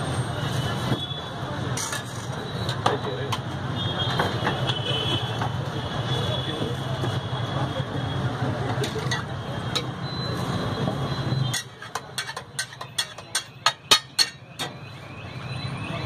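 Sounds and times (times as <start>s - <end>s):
metal masher clanking on griddle: 8.8s - 10.0s, 11.5s - 14.8s.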